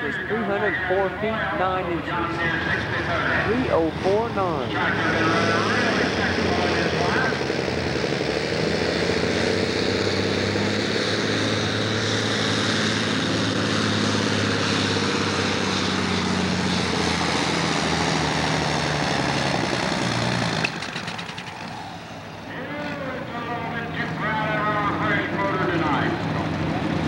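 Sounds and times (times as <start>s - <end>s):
tractor diesel engine at full throttle: 0.0s - 27.0s.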